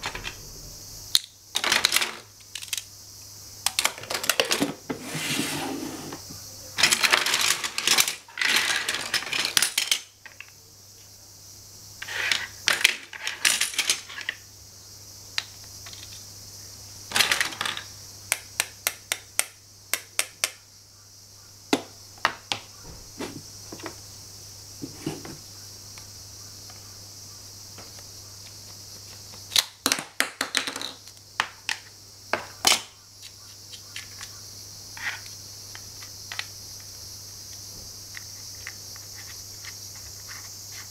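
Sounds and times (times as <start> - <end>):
toy tool pieces clattering: 1.6 - 2.8, 3.7 - 4.7, 6.8 - 10.4, 12.0 - 14.4, 17.1 - 17.9.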